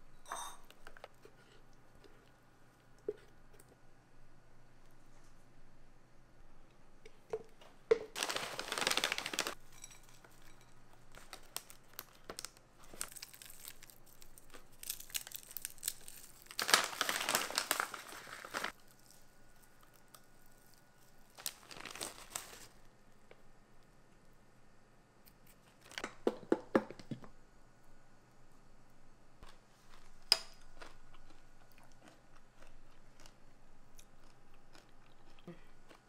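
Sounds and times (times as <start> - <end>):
plastic bags crinkling: 8.1 - 9.6, 11.0 - 19.3, 20.4 - 22.7.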